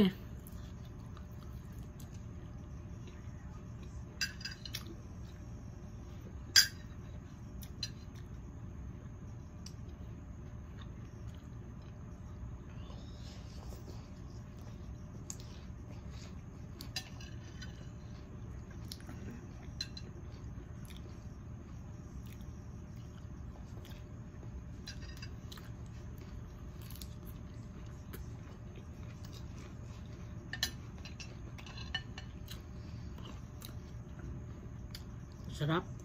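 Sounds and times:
steady low hum: 0:00.0 - 0:36.0
cutlery clinking on a plate: 0:04.1 - 0:04.9, 0:06.5 - 0:07.0, 0:19.7 - 0:20.2, 0:30.4 - 0:32.5.

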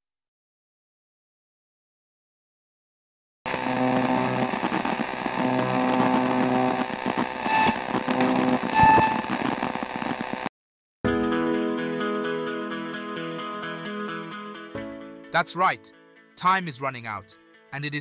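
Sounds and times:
electronic hum with held tones: 0:03.5 - 0:10.5
guitar music: 0:11.2 - 0:18.0.

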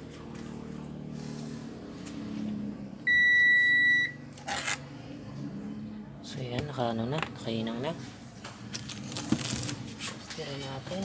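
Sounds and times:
low background hum: 0:00.0 - 0:11.0
electronic beep: 0:03.1 - 0:04.2.

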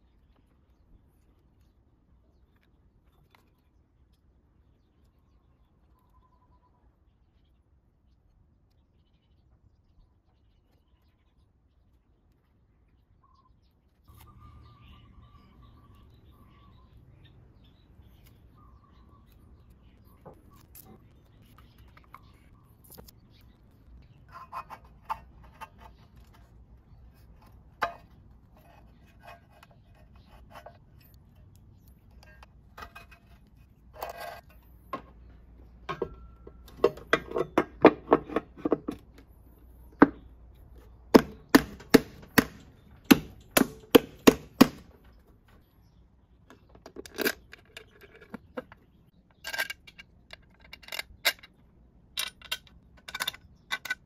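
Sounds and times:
sharp knocks and taps on metal: 0:35.8 - 0:39.3, 0:41.1 - 0:45.2.

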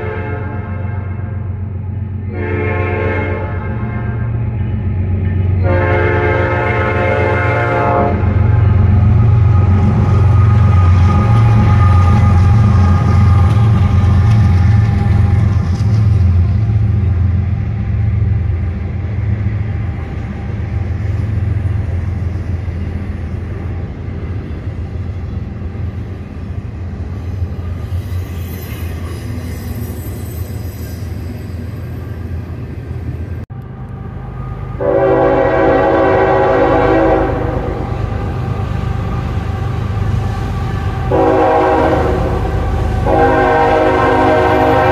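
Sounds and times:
locomotive horn: 0:00.0 - 0:01.4, 0:02.2 - 0:04.3, 0:05.6 - 0:14.3, 0:34.7 - 0:39.2, 0:40.2 - 0:44.9
locomotive engine rumble: 0:00.0 - 0:44.9
train cars rolling: 0:00.0 - 0:44.9.

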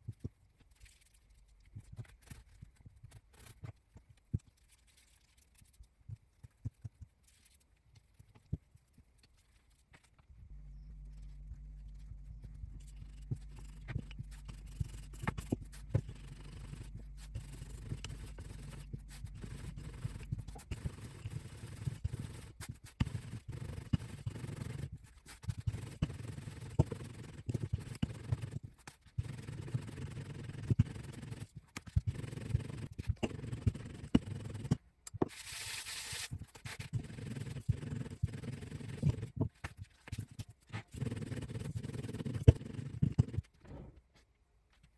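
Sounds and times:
low steady hum: 0:07.7 - 0:35.2
rolling pin rolling dough: 0:11.0 - 0:35.4, 0:36.2 - 0:43.5.

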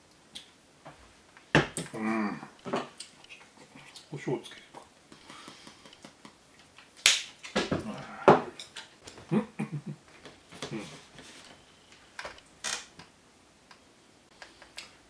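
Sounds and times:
short low vocal sounds: 0:01.9 - 0:02.6, 0:10.6 - 0:11.0.

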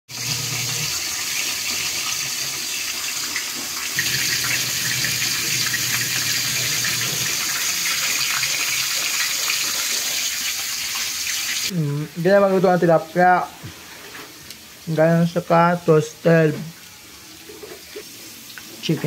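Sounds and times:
chicken sizzling in hot oil: 0:00.1 - 0:11.8.

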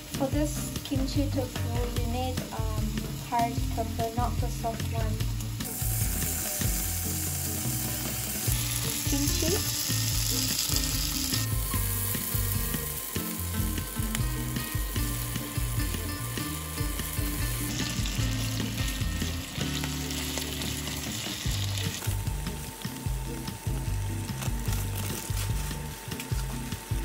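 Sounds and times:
meat sizzling in a frying pan: 0:00.0 - 0:27.0
spatula stirring in a pan: 0:05.6 - 0:22.5.

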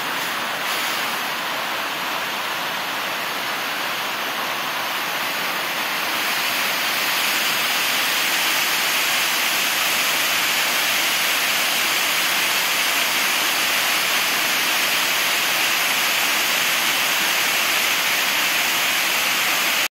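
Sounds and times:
waterfall rushing: 0:00.0 - 0:19.9.

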